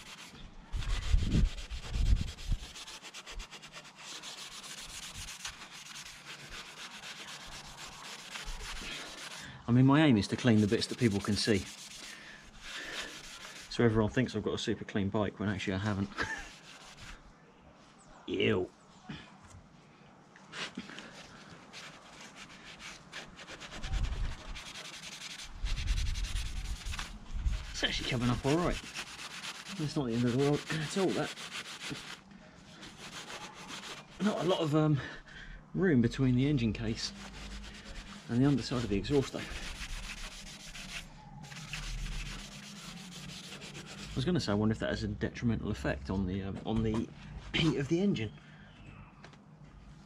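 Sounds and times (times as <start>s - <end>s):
sponge scrubbing metal pipe: 0.0s - 9.5s, 10.2s - 13.8s, 21.7s - 34.8s, 36.8s - 44.3s.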